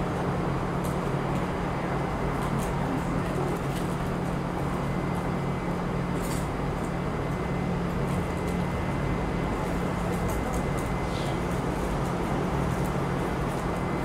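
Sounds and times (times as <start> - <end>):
constant low hum: 0.0 - 14.0.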